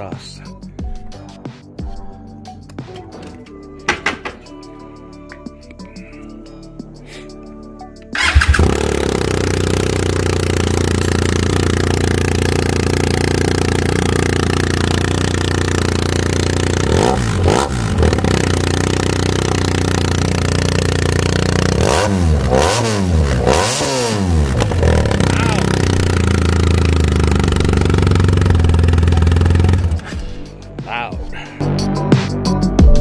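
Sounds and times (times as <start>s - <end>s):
motorcycle engine idling and revving: 8.2s - 30.5s.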